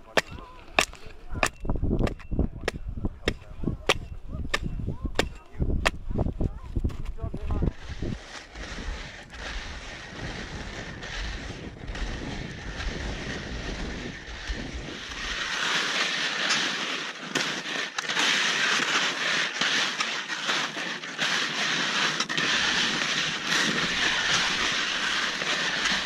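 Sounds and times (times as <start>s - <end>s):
wind rumbling on microphone: 0.3s - 15.6s
skis sliding over snow: 4.5s - 26.0s
ski scrapes: 5.9s - 26.0s.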